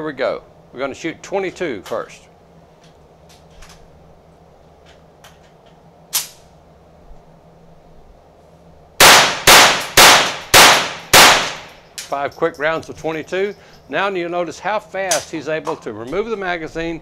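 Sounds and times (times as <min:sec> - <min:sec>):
gun handling clicks: 0:04.8 - 0:06.5
rifle gunshots ringing: 0:09.0 - 0:11.8.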